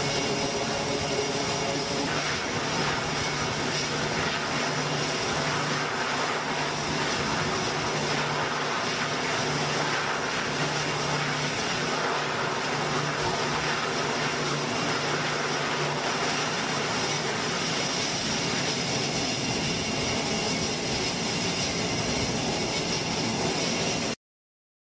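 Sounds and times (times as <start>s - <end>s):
turboprop engines at full power: 0.0s - 24.2s.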